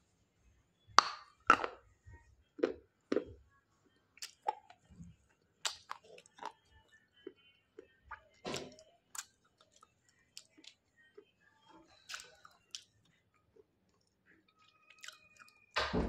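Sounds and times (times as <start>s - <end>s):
crunching and chewing: 4.2s - 4.9s, 5.6s - 7.9s, 8.6s - 10.8s, 11.9s - 15.6s.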